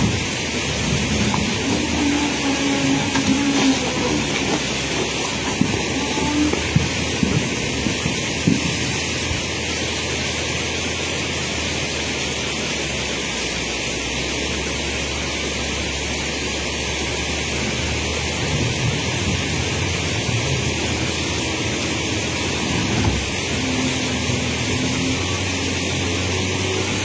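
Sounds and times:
diesel engine rumbling: 0:00.0 - 0:27.0
river rushing: 0:00.0 - 0:27.0.

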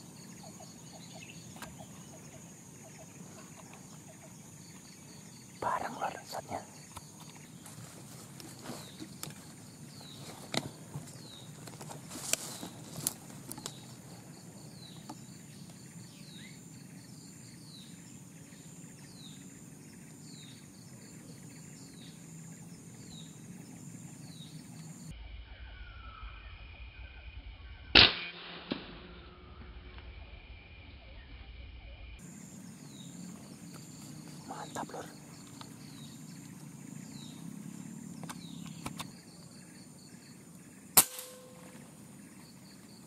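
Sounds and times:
bird chirping: 0:00.0 - 0:07.8, 0:13.5 - 0:27.1, 0:32.2 - 0:43.0
rifle shot: 0:28.0 - 0:29.2, 0:41.0 - 0:41.8.

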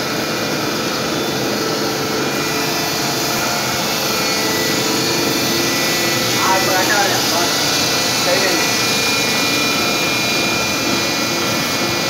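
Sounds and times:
laminating machine hum and hiss: 0:00.0 - 0:12.0.

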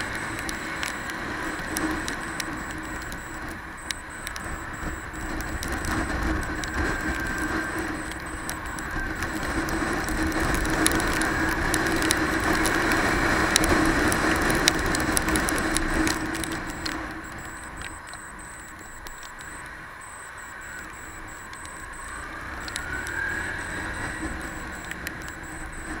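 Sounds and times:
raindrops ticking on camera: 0:00.0 - 0:26.0
wind rushing over microphone: 0:00.0 - 0:26.0.

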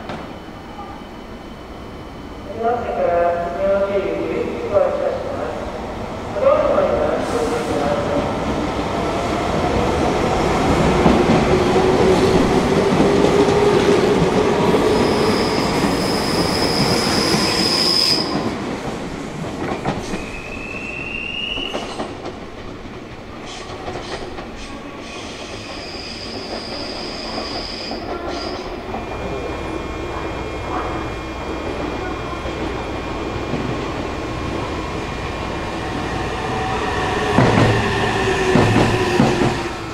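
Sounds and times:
train wheels rumbling on rail: 0:03.8 - 0:39.9.

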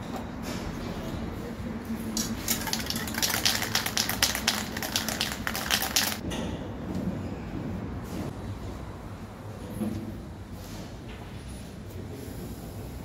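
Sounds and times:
aerosol can rattling when shaken: 0:02.2 - 0:06.2.

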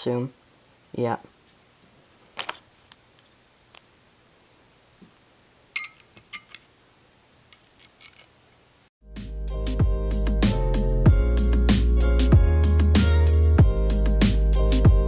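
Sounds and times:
metal screws clinking: 0:05.7 - 0:06.7, 0:07.4 - 0:08.6
background music: 0:09.0 - 0:15.0.

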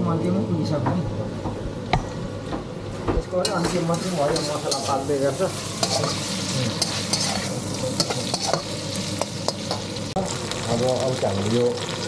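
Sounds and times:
food sizzling in a pan: 0:03.4 - 0:12.0
spatula scraping and knocking pan: 0:03.5 - 0:09.9.

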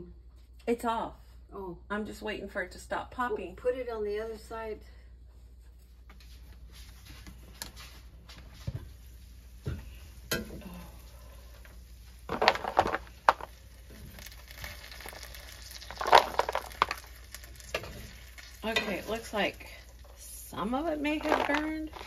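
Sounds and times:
popcorn kernels popping: 0:09.6 - 0:22.0
metal spoon scraping a pan: 0:16.6 - 0:19.4.

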